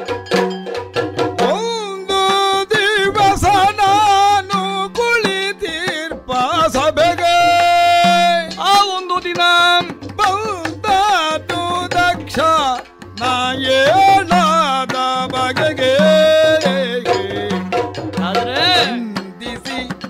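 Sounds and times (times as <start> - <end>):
drum strokes: 0.0 - 20.0
person singing ornamented melody: 1.4 - 20.0.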